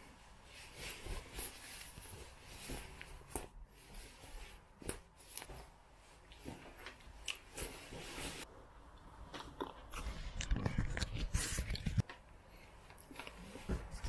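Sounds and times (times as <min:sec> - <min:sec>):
jacket rustling: 0:00.0 - 0:08.5.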